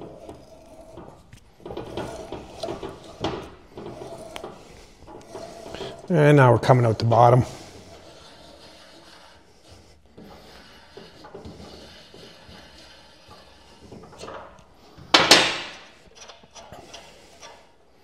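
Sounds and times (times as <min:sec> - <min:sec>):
tap scraping and creaking in metal: 0:00.0 - 0:18.0
loud clunk: 0:15.1 - 0:15.9.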